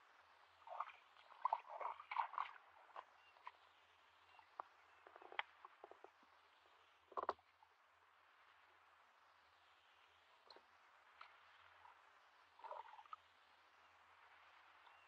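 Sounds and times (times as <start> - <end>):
muddy water splashing: 0.6 - 3.6.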